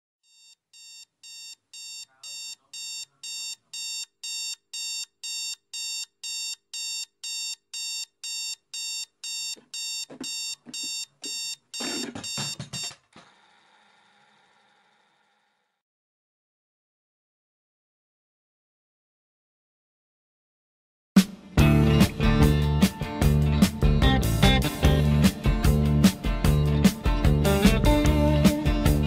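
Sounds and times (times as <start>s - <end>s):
alarm clock beeping: 0.2s - 13.0s
knocks and fumbling thuds: 9.6s - 13.2s.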